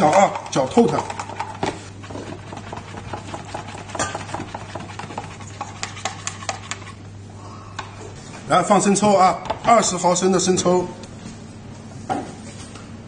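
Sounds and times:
metal spoon stirring thick paste: 2.0 - 7.0.

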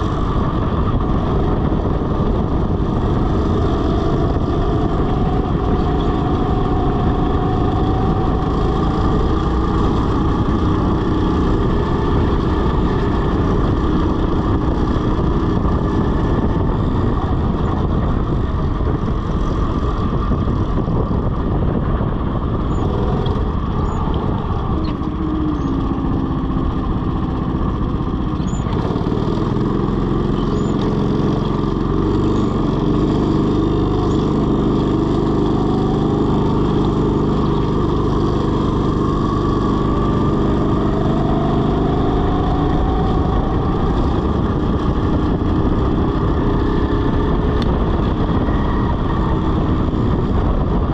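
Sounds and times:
go-kart engine running: 0.0 - 50.9.

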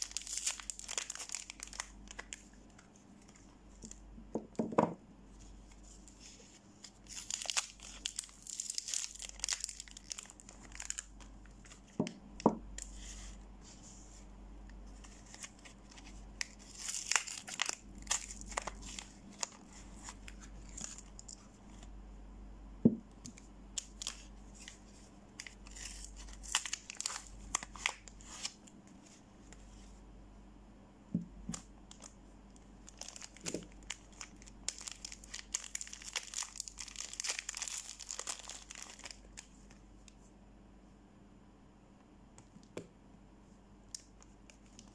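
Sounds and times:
wrappers crinkling and tearing: 0.0 - 4.0, 6.8 - 12.0, 15.0 - 21.5, 23.8 - 28.7, 32.8 - 39.7.

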